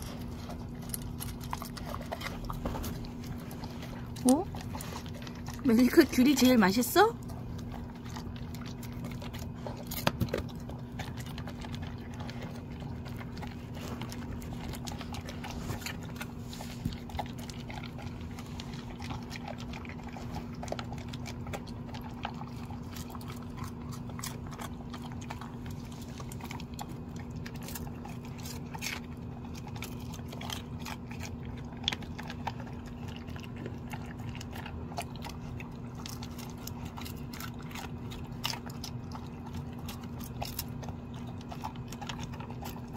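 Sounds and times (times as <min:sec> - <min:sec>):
dog chewing dry kibble: 0:00.0 - 0:42.9
steady low hum: 0:00.0 - 0:42.9.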